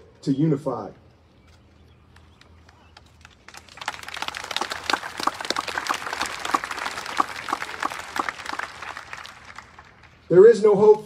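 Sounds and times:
crowd applauding: 0:02.6 - 0:11.0.

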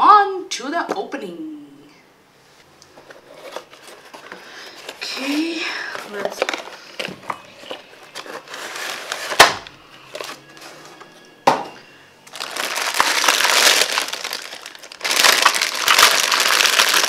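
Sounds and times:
plastic bag crinkling: 0:03.1 - 0:10.5, 0:12.2 - 0:17.0.

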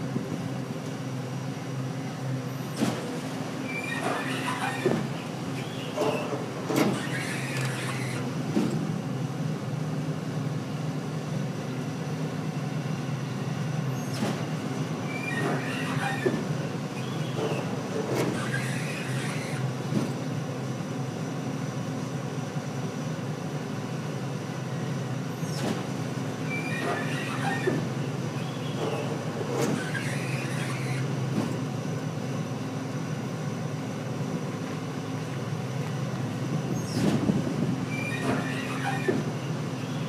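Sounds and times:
metal clunks and squealing: 0:02.7 - 0:08.8, 0:13.9 - 0:20.2, 0:25.4 - 0:31.7, 0:36.6 - 0:40.0.

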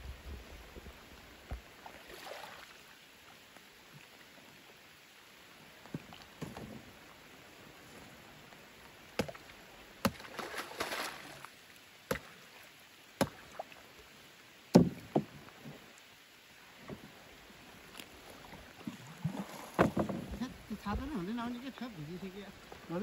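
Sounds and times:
splashing rustle: 0:00.0 - 0:23.0
knocks on wooden boat: 0:14.7 - 0:15.4, 0:19.7 - 0:21.1.

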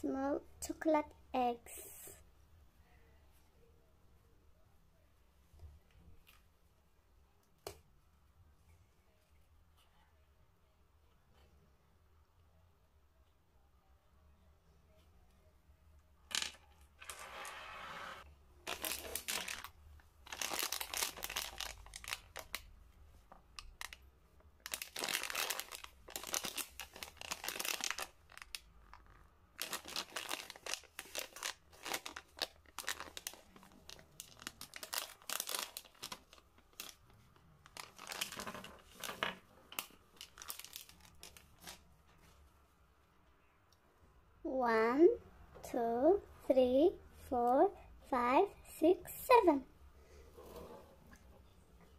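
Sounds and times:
plastic wrapper crinkling and tearing: 0:18.6 - 0:22.7, 0:23.5 - 0:41.8.

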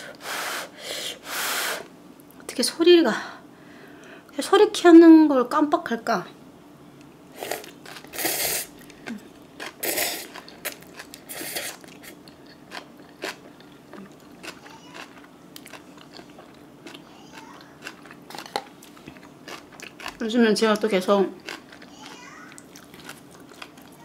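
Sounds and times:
noodle slurps: 0:07.4 - 0:08.8, 0:09.6 - 0:12.2
wet chewing with clicks: 0:09.6 - 0:24.0.

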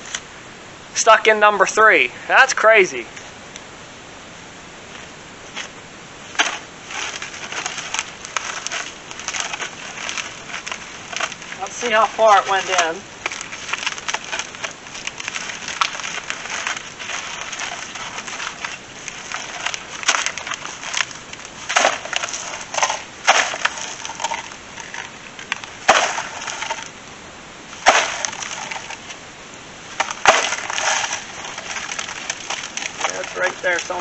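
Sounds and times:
ice crunching and scraping: 0:05.5 - 0:27.0, 0:27.7 - 0:29.2, 0:29.8 - 0:34.0
ice cracking: 0:06.3 - 0:27.0, 0:27.7 - 0:29.2, 0:29.8 - 0:34.0.

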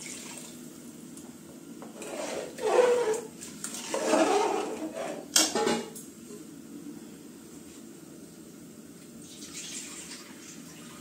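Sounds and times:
spatula scraping in pot: 0:02.0 - 0:05.3.

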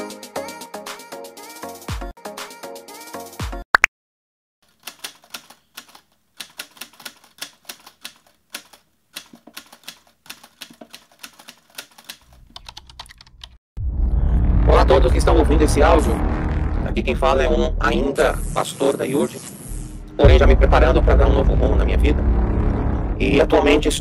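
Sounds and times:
keyboard typing clicks: 0:04.8 - 0:13.6
loud hit: 0:13.8 - 0:17.5, 0:20.1 - 0:23.9
intro music: 0:13.8 - 0:24.0.

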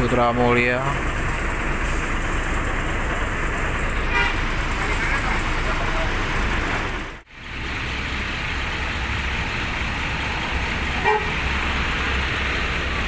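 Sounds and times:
bus engine running: 0:00.0 - 0:13.0
road traffic noise: 0:00.0 - 0:13.0
vehicle horn beep: 0:04.1 - 0:04.4, 0:11.0 - 0:11.4.

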